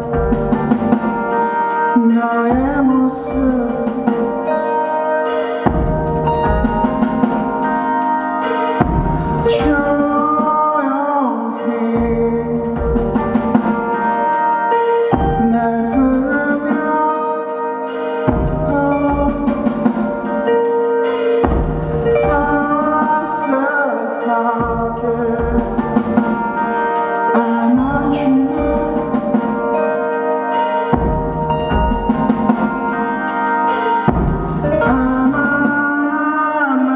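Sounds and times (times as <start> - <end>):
bass: 0.0 - 1.4, 2.4 - 4.5, 5.7 - 7.8, 8.8 - 10.6, 12.0 - 14.1, 15.1 - 16.7, 18.3 - 20.5, 21.4 - 23.5, 24.6 - 26.7, 27.7 - 29.7, 30.9 - 32.9, 34.1 - 36.3
drums: 0.0 - 36.9
electric guitar: 0.0 - 36.9
keyboards: 0.0 - 36.9.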